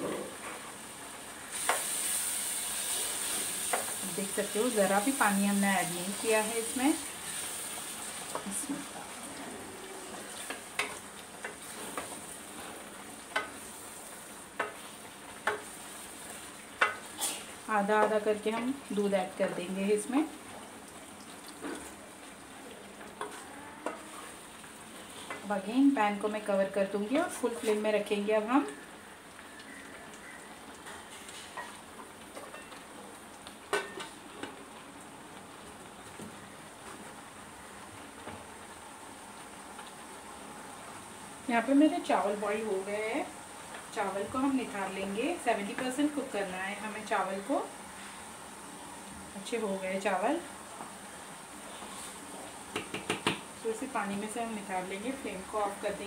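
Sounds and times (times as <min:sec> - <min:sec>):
gravy sizzling in a pan: 0:00.0 - 0:56.0
utensil knocking against pan: 0:52.7 - 0:53.4.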